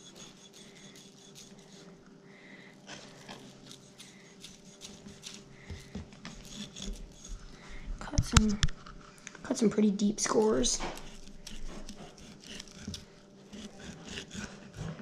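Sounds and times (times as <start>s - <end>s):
knife slicing and scraping fish: 0.0s - 1.9s, 2.9s - 7.5s, 10.6s - 15.0s
steady low hum: 0.0s - 15.0s.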